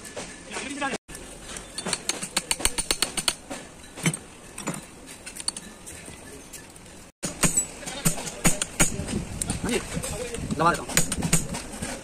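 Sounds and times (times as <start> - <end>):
metallic gear clicks and clinks: 1.6 - 7.7.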